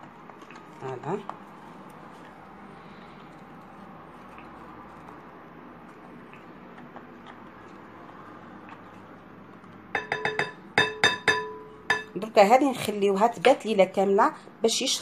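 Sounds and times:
spatula clinking on glass bowl: 0:10.0 - 0:12.2.

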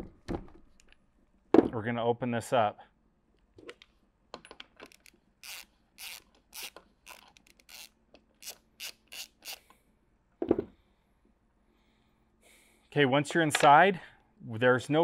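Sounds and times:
hand ratchet clicking: 0:04.8 - 0:09.7.

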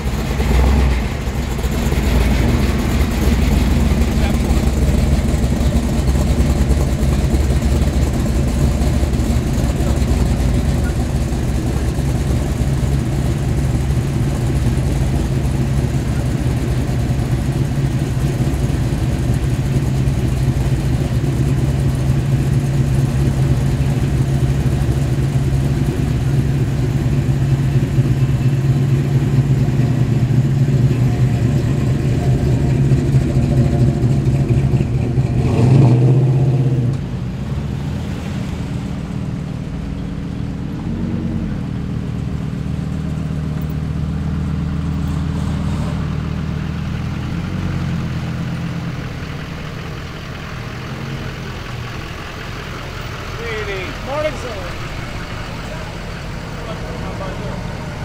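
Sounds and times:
another car engine: 0:00.0 - 0:58.0
car engine idling and revving: 0:00.0 - 0:58.0.

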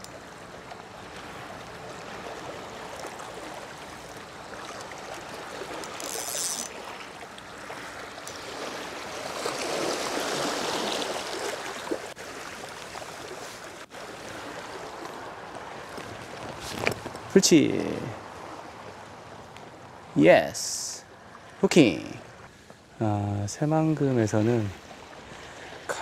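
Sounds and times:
sea water washing on rocks: 0:01.1 - 0:17.3.

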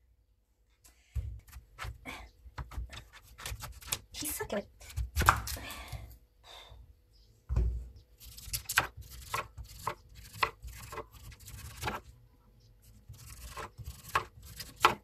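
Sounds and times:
knife cutting strokes: 0:13.0 - 0:15.0.

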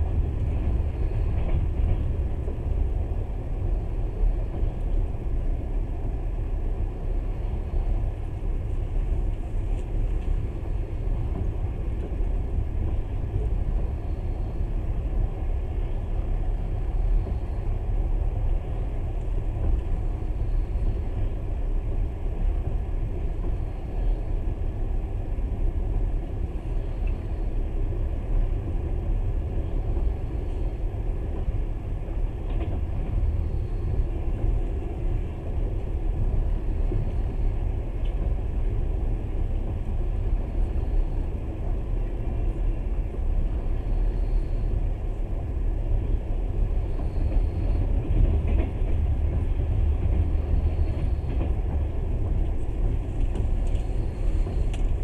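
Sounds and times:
train rumbling on rails: 0:00.0 - 0:55.0
faint ticks: 0:52.4 - 0:55.0.

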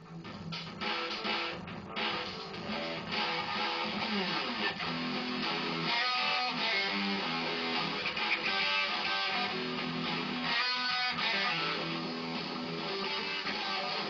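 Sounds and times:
electric guitar blues rock riff: 0:00.0 - 0:14.0.

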